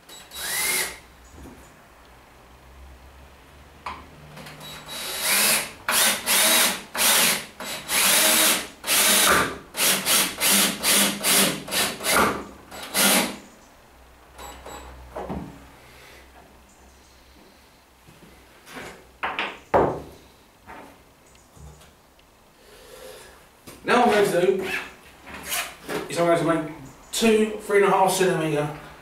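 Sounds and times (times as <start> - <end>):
cordless drill motor whining: 0.1 - 1.0, 4.6 - 12.2, 12.8 - 13.3.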